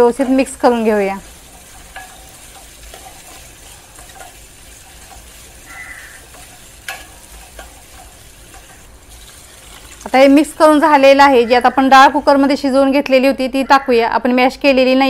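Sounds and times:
faint sizzle: 0.0s - 13.7s
metal spoon scraping a pan: 1.2s - 12.6s.

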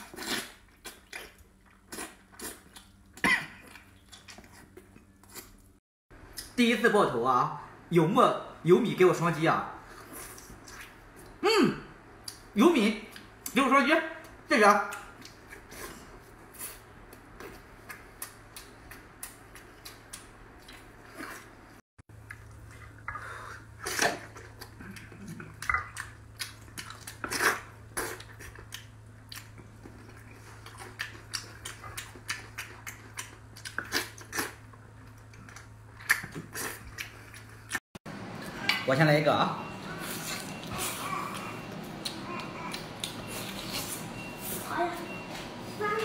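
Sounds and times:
wet chewing and lip smacking: 14.3s - 21.5s, 22.2s - 37.8s, 39.7s - 45.3s.

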